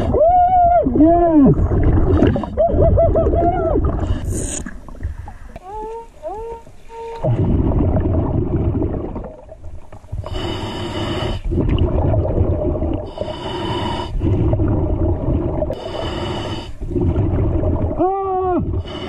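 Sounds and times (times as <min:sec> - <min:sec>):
exhaled bubbles gurgling: 0:00.0 - 0:19.0
regulator inhalation hiss: 0:10.2 - 0:11.5, 0:13.1 - 0:14.2, 0:15.8 - 0:16.8.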